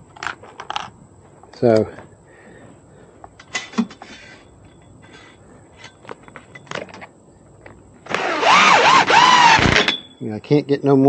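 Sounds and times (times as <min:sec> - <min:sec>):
hardware clicks and knocks: 0:03.3 - 0:07.8.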